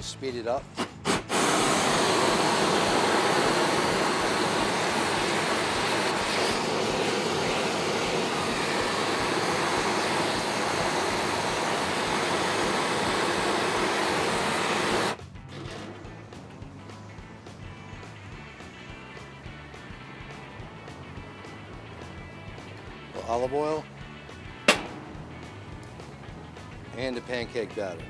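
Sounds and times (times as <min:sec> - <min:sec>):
gas torch hissing: 0:00.6 - 0:15.2.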